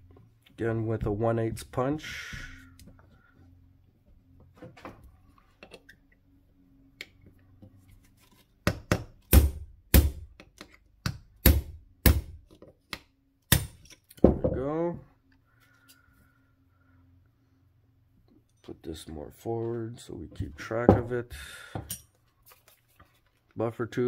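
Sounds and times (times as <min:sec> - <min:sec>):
hammer striking metal punch: 0:08.7 - 0:10.3, 0:11.4 - 0:12.4.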